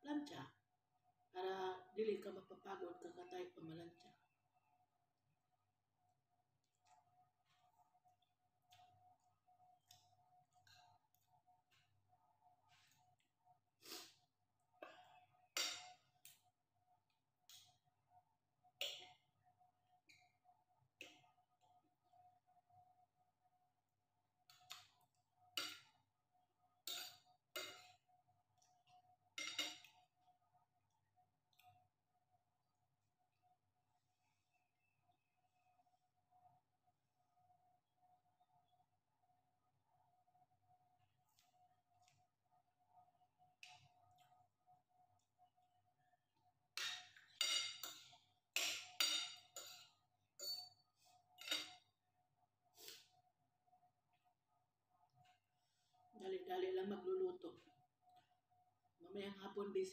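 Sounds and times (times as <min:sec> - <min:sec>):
cutlery clinking on ceramic plate: 0:29.4 - 0:29.9, 0:46.8 - 0:50.8, 0:51.4 - 0:51.9.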